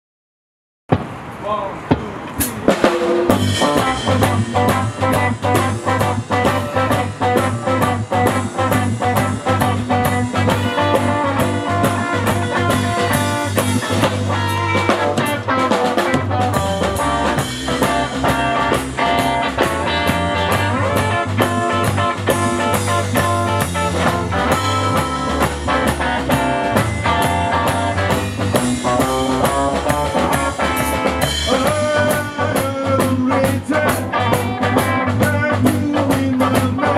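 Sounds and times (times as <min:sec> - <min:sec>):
drum kit beat: 0:01.9 - 0:36.9
electric guitar chords: 0:02.7 - 0:36.9
bass line: 0:03.3 - 0:36.9.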